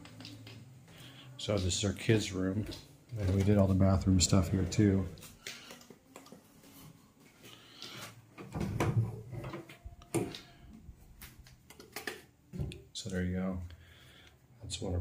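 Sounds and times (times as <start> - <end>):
footsteps indoors: 0.0 - 8.5.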